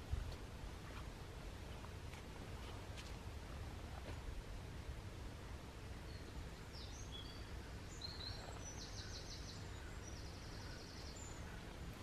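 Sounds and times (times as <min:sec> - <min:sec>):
low background noise: 0:00.0 - 0:12.0
small birds chirping: 0:05.4 - 0:12.0.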